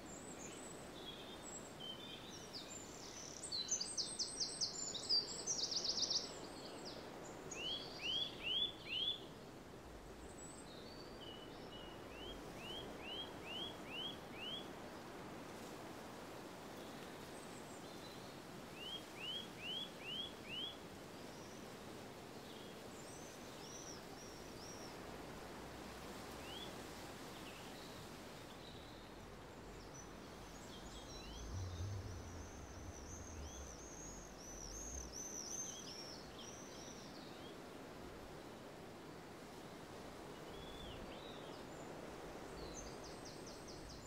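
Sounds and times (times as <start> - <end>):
background hiss: 0.0 - 44.0
birds singing: 28.6 - 37.3
low rumble: 30.4 - 35.2.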